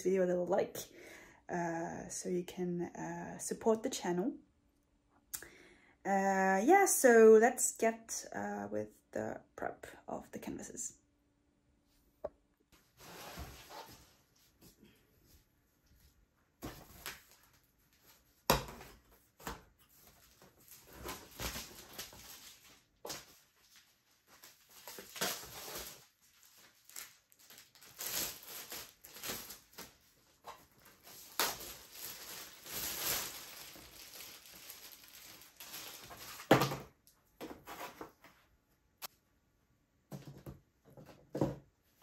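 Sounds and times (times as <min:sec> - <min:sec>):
canvases rustling and scraping: 0:12.8 - 0:22.2, 0:37.4 - 0:38.5.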